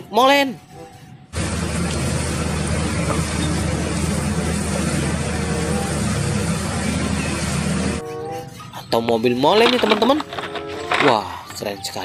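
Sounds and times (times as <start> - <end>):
truck engine humming: 0.6 - 11.8
concrete unloading noise: 9.4 - 11.8.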